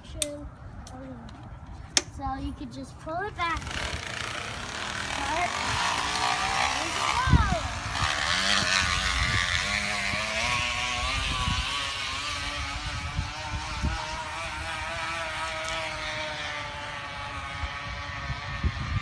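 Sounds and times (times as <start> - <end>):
bottle buzzing on bicycle spokes: 3.6 - 19.0.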